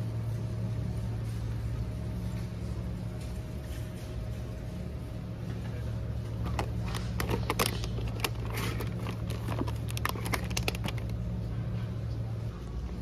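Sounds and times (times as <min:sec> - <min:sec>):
refrigerator low hum: 0:00.0 - 0:13.0
plastic package crackling: 0:06.5 - 0:11.2.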